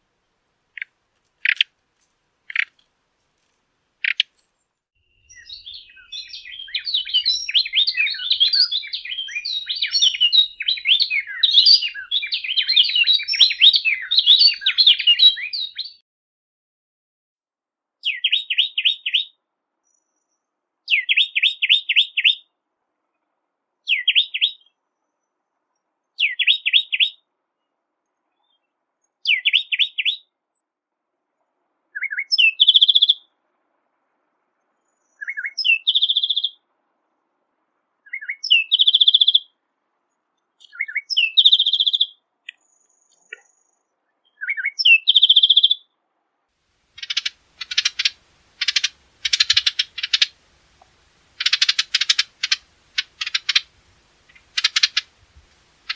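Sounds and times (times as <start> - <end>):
wren singing: 0.8 - 1.6, 4.0 - 4.2, 5.1 - 16.0, 40.6 - 45.8, 47.0 - 55.9.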